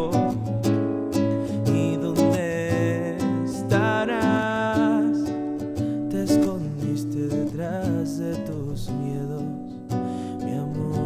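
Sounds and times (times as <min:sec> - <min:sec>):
acoustic guitar: 0:00.0 - 0:11.0
man singing: 0:00.0 - 0:11.0.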